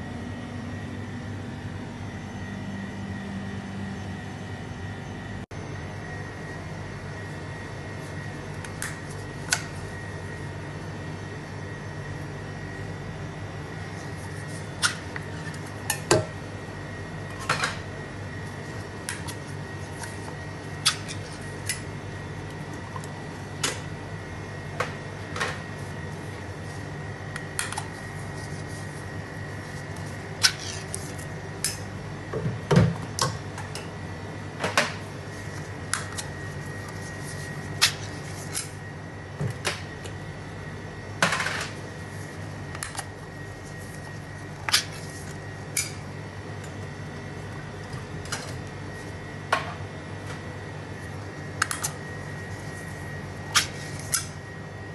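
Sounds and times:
steady hum with high whine: 0.0s - 54.9s.

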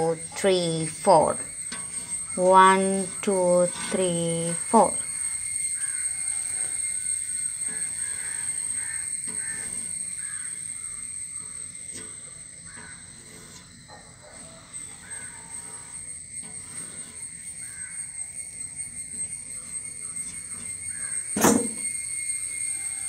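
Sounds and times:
crows cawing: 5.8s - 6.3s, 8.0s - 11.6s, 12.6s - 13.2s, 15.0s - 15.6s, 17.6s - 18.0s, 20.9s - 21.2s.

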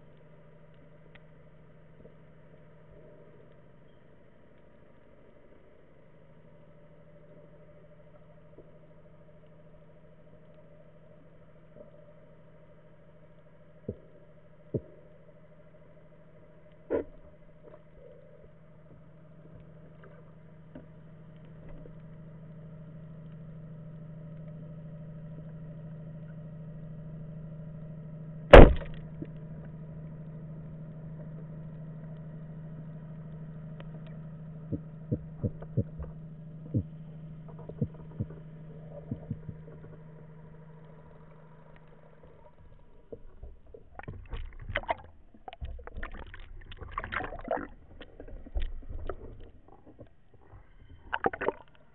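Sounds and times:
steady low hum: 0.0s - 51.9s
speargun firing crack: 28.5s - 29.0s
water noise: 28.5s - 29.8s, 30.9s - 51.9s.

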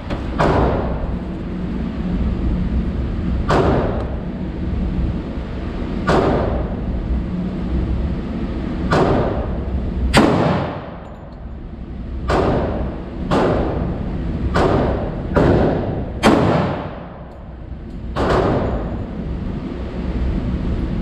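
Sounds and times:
steady low rumble: 0.0s - 21.0s
gunshots with ringing decay: 10.2s - 11.0s, 14.6s - 17.2s.

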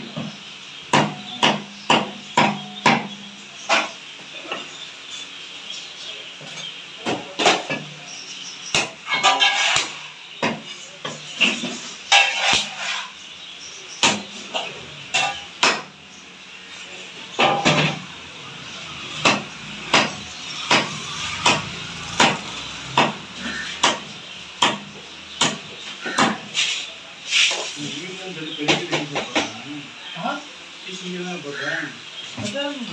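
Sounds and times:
cleaver chopping on wooden block: 0.9s - 3.1s, 14.0s - 14.3s, 15.6s - 15.9s, 19.2s - 26.5s.

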